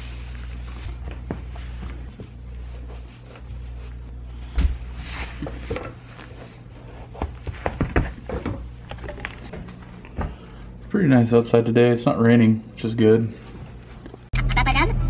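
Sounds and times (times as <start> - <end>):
low steady hum: 0.0 - 15.0
sneakers rubbing and knocking on tile: 0.8 - 8.8.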